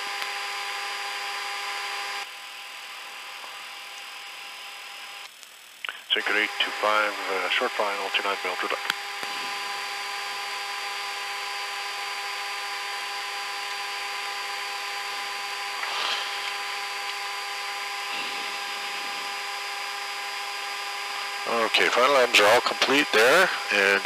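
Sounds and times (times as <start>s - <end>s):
jet engines whining: 5.9s - 24.0s
cockpit airflow rush: 15.8s - 21.8s.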